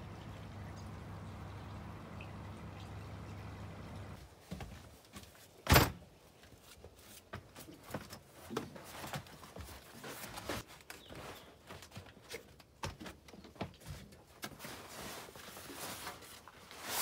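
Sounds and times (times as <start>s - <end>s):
canvas rustling: 14.5s - 17.0s.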